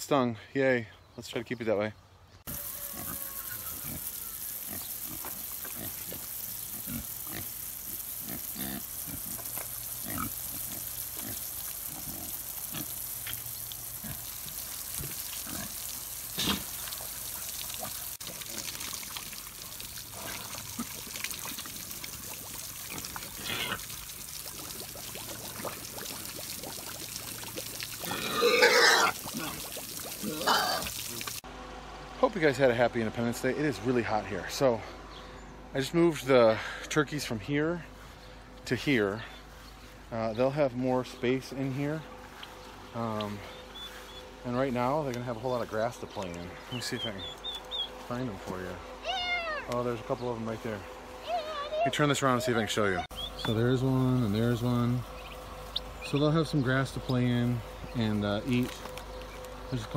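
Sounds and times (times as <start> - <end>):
pigs grunting: 2.5 - 19.0, 19.9 - 31.3
pitched pig calls: 2.5 - 31.4
garden hose spraying water: 2.5 - 31.5, 38.0 - 59.9.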